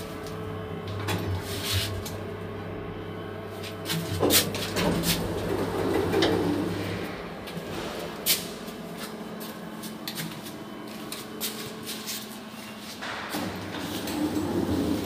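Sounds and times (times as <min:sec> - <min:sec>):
lift doors sliding closed: 0:04.0 - 0:08.3, 0:13.0 - 0:15.0.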